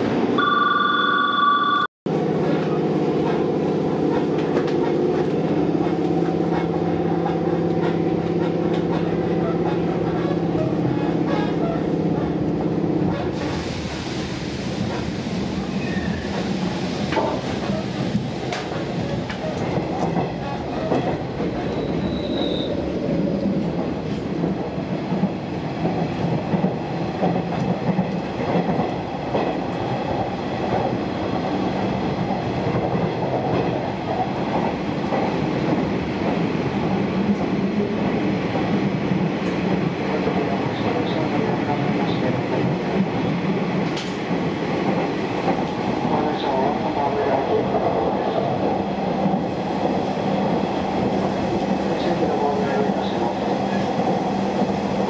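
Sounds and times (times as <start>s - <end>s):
train wheels rumbling on rails: 2.1s - 55.0s
rail-joint clicks: 4.1s - 11.8s, 15.8s - 22.7s, 43.8s - 46.2s
train hiss: 13.3s - 18.1s
high wheel squeal: 21.7s - 22.7s.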